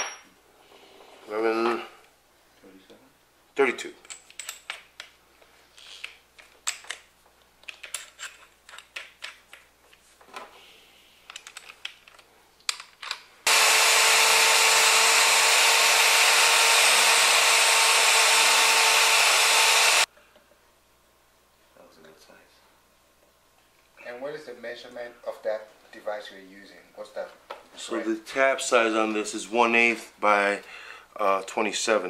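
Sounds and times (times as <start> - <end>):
electric drill whining: 13.5 - 20.1.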